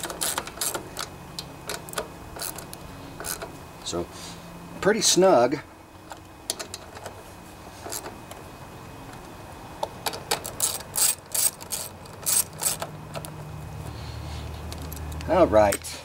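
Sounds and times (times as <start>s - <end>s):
socket ratchet clicking: 0.0s - 3.5s, 10.0s - 13.3s.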